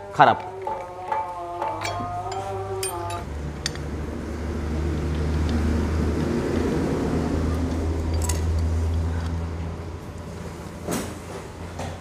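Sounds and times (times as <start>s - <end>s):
metal parts clinking: 1.8s - 3.8s.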